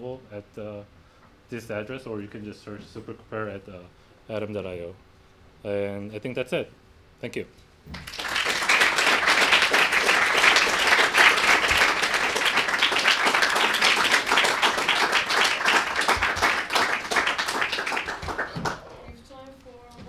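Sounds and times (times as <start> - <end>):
audience applauding: 8.0 - 18.9.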